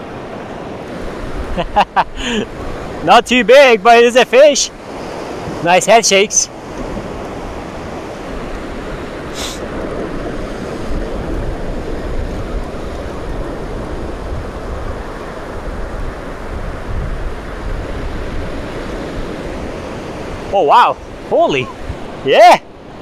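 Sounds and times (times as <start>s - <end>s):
surf breaking on beach: 0.0s - 23.0s
wind rumbling on microphone: 6.3s - 23.0s.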